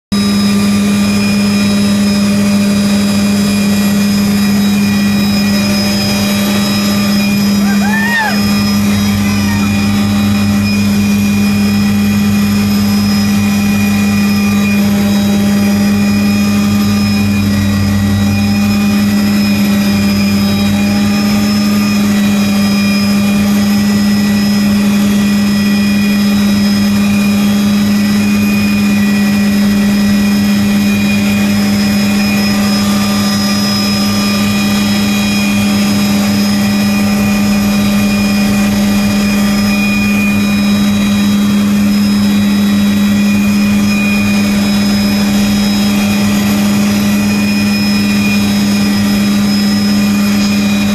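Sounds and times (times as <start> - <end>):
helicopter engine and rotor drone: 0.1 - 50.9
deep throb: 0.4 - 50.9.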